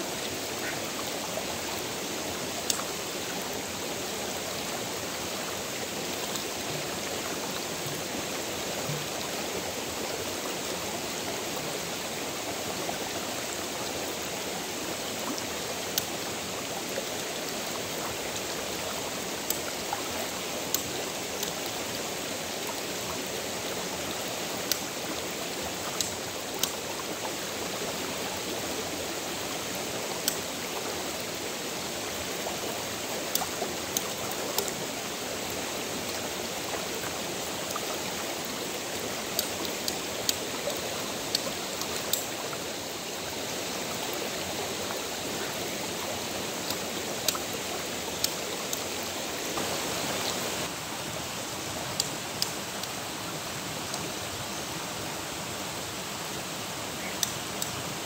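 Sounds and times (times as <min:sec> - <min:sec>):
stream flowing: 0:00.0 - 0:58.0.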